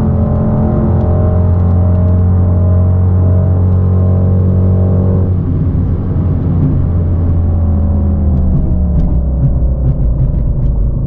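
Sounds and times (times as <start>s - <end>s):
synthesized engine sound: 5.5s - 11.0s.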